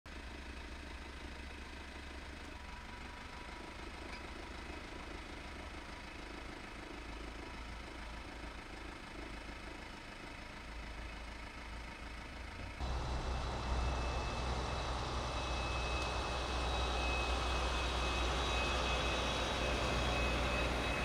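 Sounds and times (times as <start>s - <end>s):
truck engine running: 10.8s - 21.0s.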